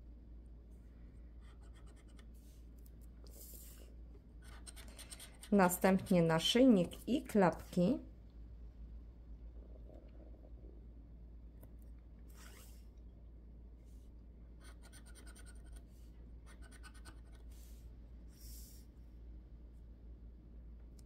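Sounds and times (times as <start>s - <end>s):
scraper scratching scratch card: 4.4s - 5.8s, 14.6s - 15.8s.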